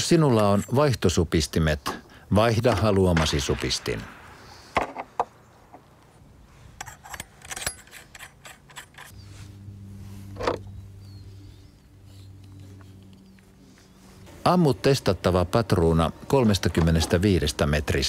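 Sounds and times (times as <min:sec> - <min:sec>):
steady low hum: 0:03.2 - 0:16.4
clicks and rattles of metal parts: 0:06.8 - 0:09.2.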